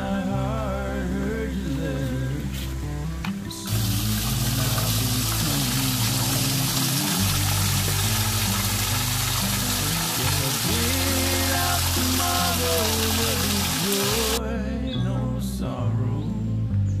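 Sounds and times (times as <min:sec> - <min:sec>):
background music with low notes: 0:00.0 - 0:17.0
water splashing onto rocks: 0:03.7 - 0:14.4.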